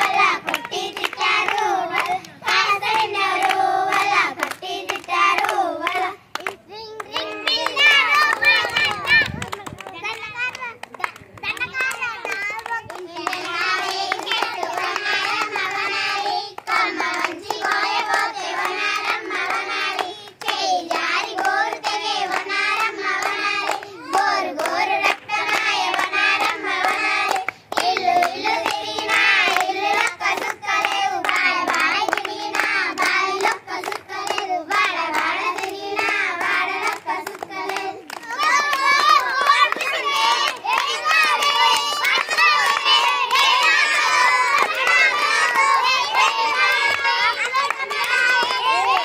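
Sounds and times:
girls singing folk song: 0:00.0 - 0:08.3
hands clapping: 0:00.0 - 0:49.0.

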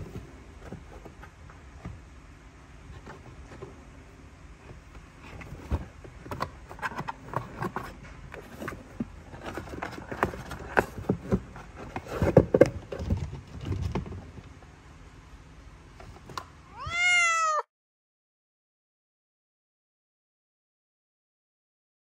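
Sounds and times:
cat scratching cardboard box: 0:04.7 - 0:14.3.

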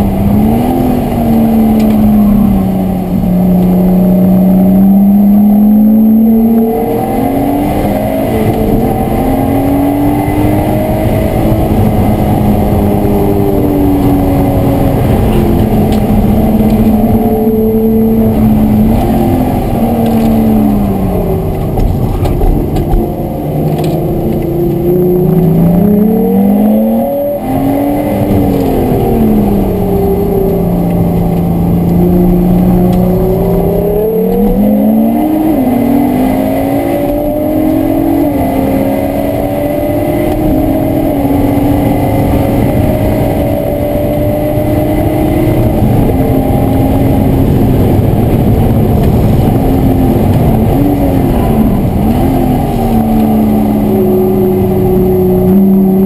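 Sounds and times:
car engine accelerating and shifting: 0:00.0 - 0:56.0.

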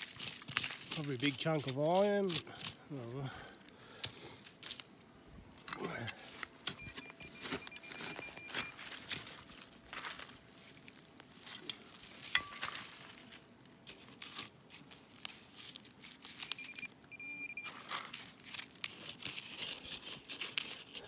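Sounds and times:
hand digger scraping soil: 0:00.0 - 0:03.1, 0:17.6 - 0:21.0
metal detector beep: 0:06.7 - 0:08.8, 0:16.5 - 0:17.8.

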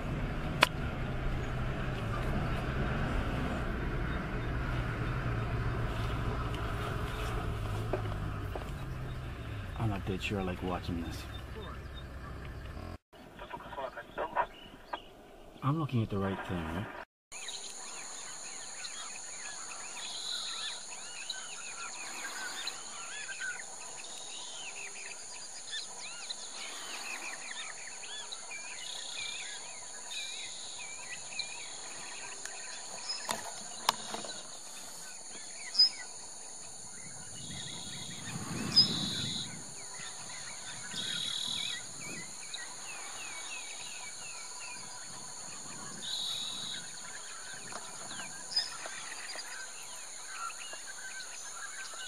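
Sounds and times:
birds chirping: 0:00.0 - 0:52.0
insect drone: 0:17.4 - 0:52.0.

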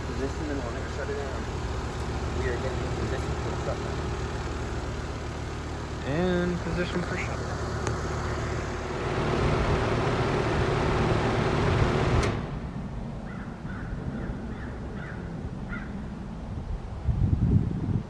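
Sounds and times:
heat pump compressor hum: 0:00.0 - 0:12.9
sharp shutoff click: 0:11.6 - 0:12.6.

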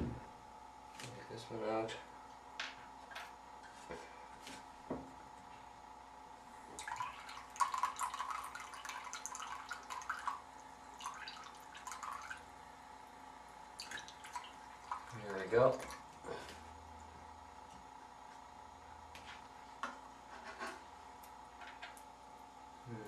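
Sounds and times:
water dripping and splashing: 0:06.8 - 0:12.5, 0:13.7 - 0:16.2.

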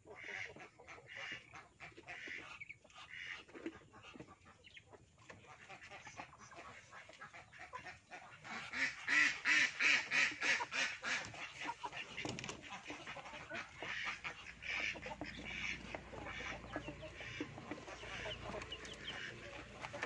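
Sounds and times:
poultry calling: 0:00.0 - 0:20.0.

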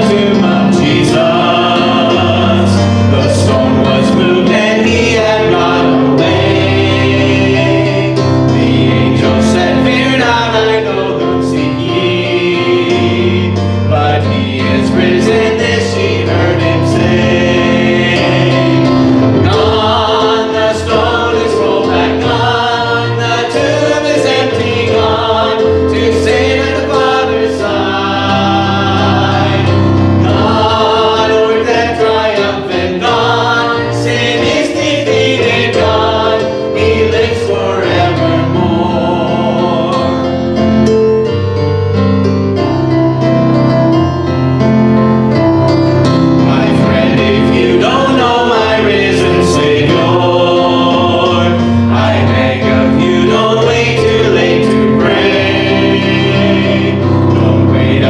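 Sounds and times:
mixed choir singing: 0:00.0 - 0:41.0, 0:45.3 - 0:58.0.

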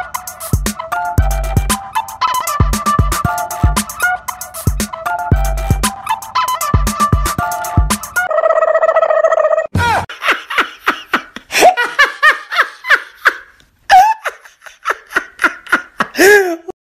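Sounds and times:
high-pitched laughing: 0:08.2 - 0:16.7.

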